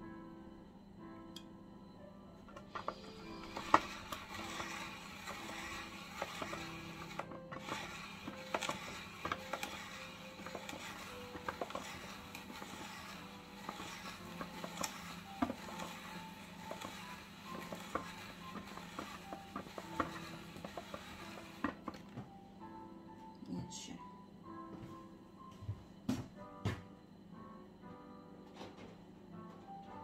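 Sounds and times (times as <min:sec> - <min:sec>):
soft background music: 0:00.0 - 0:30.0
spiralizer rasping: 0:02.6 - 0:22.0.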